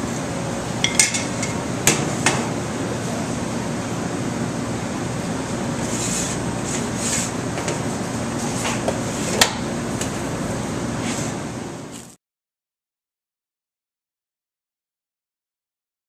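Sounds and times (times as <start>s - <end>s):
kitchen machinery humming: 0.0s - 12.2s.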